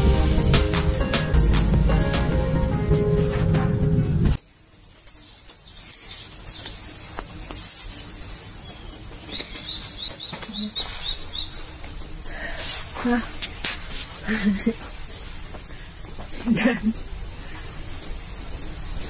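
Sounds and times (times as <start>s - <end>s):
background music: 0.0s - 4.4s.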